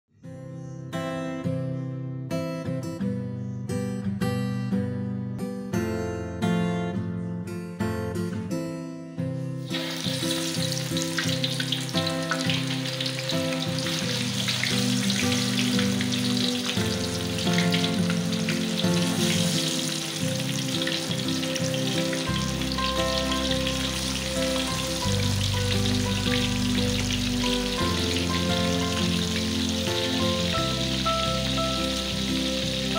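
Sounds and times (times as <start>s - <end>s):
background guitar music: 0.2s - 32.9s
fish sizzling in hot oil: 9.7s - 32.9s.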